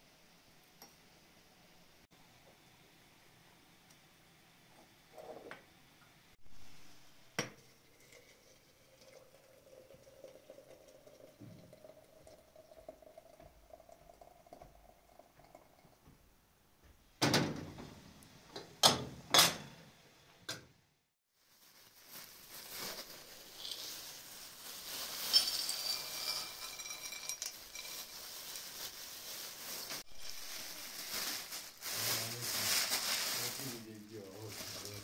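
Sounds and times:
water pouring into teapot: 7.6s - 16.0s.

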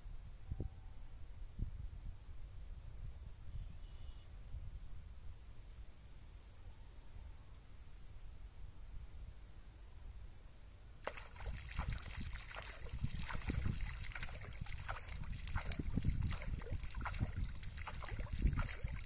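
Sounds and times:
pond water splashing and sloshing: 11.0s - 19.0s.

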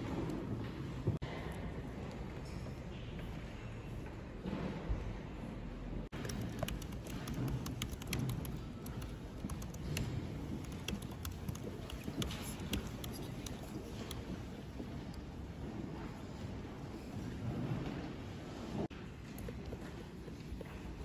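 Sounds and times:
low background noise: 0.0s - 21.0s
laptop keys clicking: 6.2s - 14.2s.

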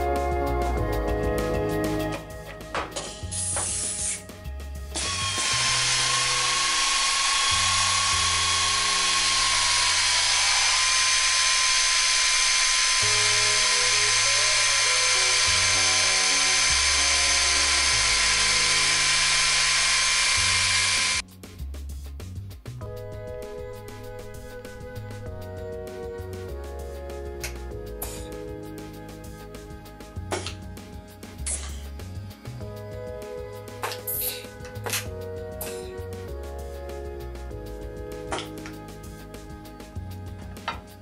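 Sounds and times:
background music with bass: 0.0s - 11.6s, 12.3s - 41.0s
pneumatic drill whining: 2.0s - 21.2s, 23.4s - 30.7s, 31.4s - 32.6s, 33.2s - 36.2s, 38.3s - 39.2s.

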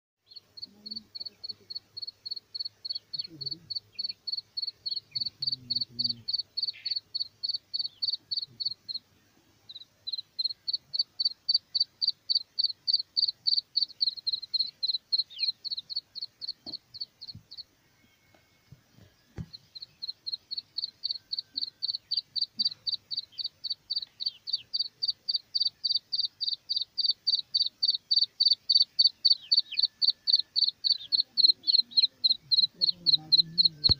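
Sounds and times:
chick peeping: 9.7s - 17.6s, 19.4s - 33.9s.

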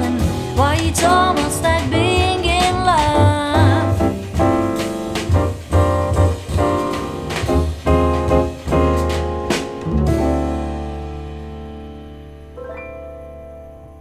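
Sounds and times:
person singing: 0.0s - 4.1s
low bass notes: 0.0s - 12.6s
piano chords: 0.0s - 14.0s.

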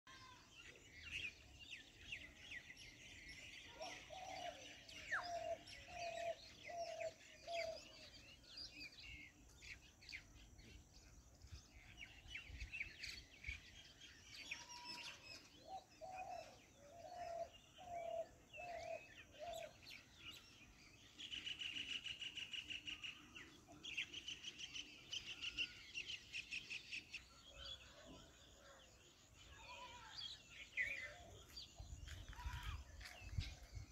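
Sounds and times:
birds chirping and twittering: 0.1s - 33.9s.

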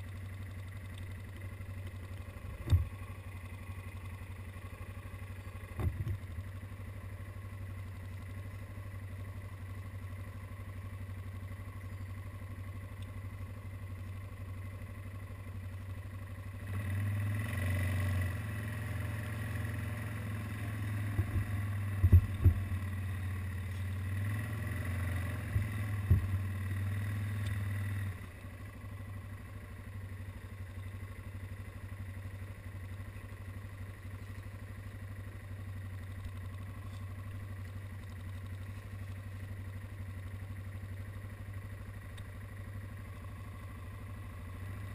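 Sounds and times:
atv engine idling: 0.0s - 44.9s
sharp knocks: 21.1s - 22.7s, 25.6s - 26.4s
thump: 21.1s - 22.7s, 25.6s - 26.4s.

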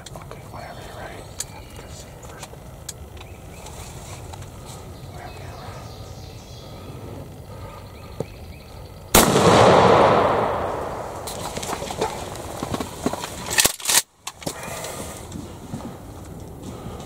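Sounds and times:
shotgun shot with echo: 9.2s - 11.6s.

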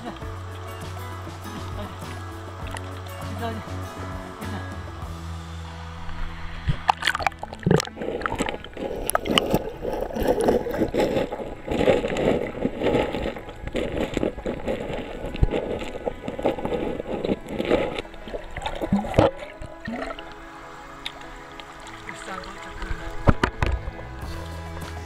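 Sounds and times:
river water gurgling: 0.0s - 25.0s
dog paddling splashes: 6.8s - 25.0s.

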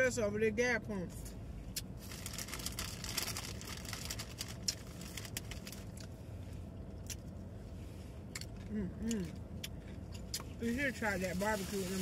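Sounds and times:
plastic cup crinkling: 2.0s - 5.9s.

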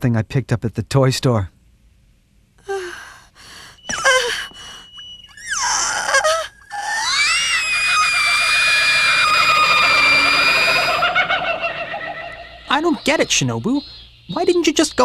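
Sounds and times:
woman shrieking: 3.9s - 4.7s, 5.3s - 11.5s.

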